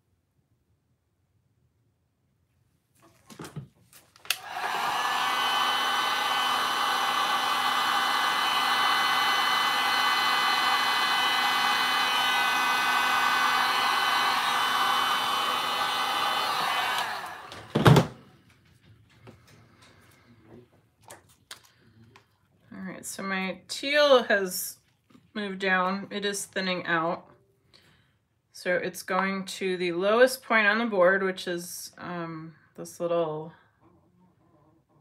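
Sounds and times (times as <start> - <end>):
heat gun blowing air: 4.3 - 17.8.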